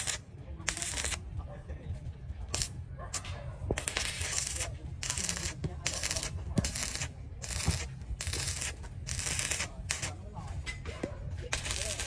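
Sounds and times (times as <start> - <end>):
welding arc crackling and hissing: 0.0 - 1.2, 2.5 - 2.8, 3.7 - 10.2, 11.5 - 12.0.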